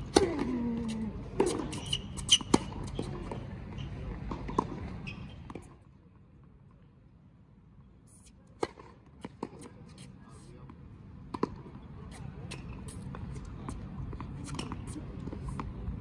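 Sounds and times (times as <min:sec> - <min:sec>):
racket hitting tennis ball: 0:00.0 - 0:03.4
tennis ball bouncing on court: 0:00.0 - 0:05.8, 0:08.5 - 0:10.0, 0:10.7 - 0:16.0.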